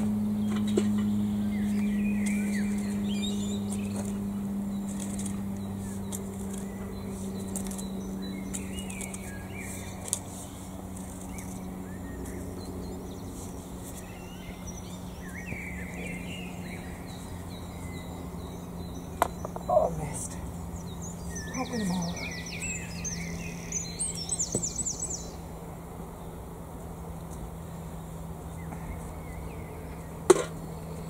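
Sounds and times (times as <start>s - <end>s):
aeroplane droning: 0.0s - 31.0s
songbirds chirping: 0.0s - 31.0s
rake scraping soil: 1.6s - 15.6s.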